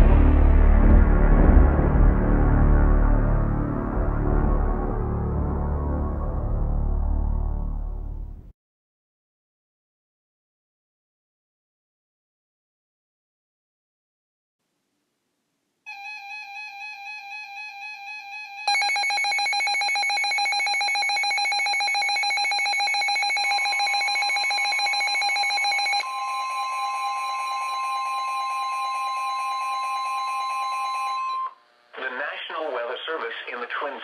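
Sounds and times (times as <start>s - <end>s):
rapidly pulsing alarm: 15.9s - 31.6s
steady warning alarm tone: 15.9s - 31.6s.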